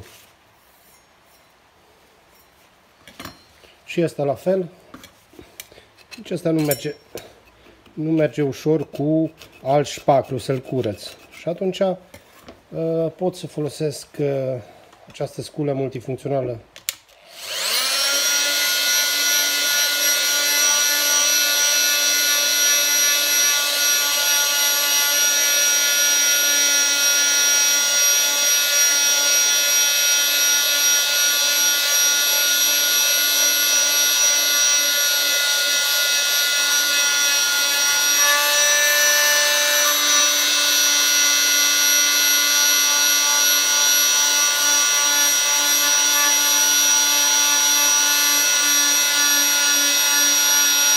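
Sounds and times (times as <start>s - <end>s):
oscillating multi-tool whining: 17.2s - 50.9s.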